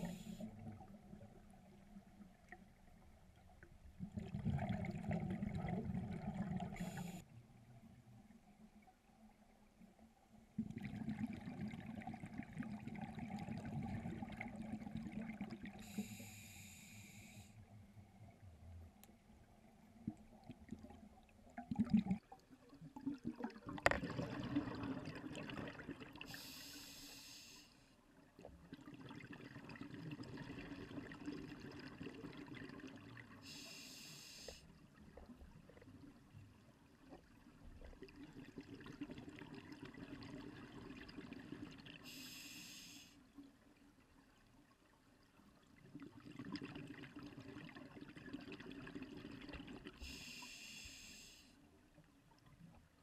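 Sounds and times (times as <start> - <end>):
regulator inhale hiss: 0.0 - 0.5, 6.8 - 7.3, 15.8 - 17.6, 26.3 - 27.9, 33.4 - 34.7, 42.0 - 43.2, 50.0 - 51.6
exhaled air bubbling: 4.0 - 7.2, 10.6 - 16.2, 20.0 - 26.4.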